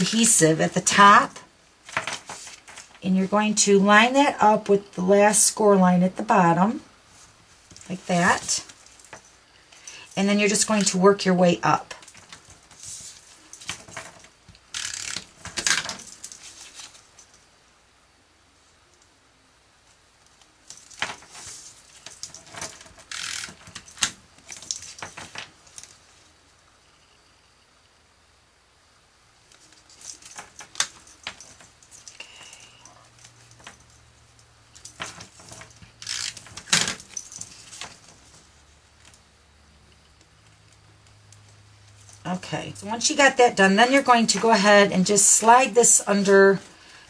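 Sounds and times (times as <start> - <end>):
paper rustling: 1.8 - 3.0.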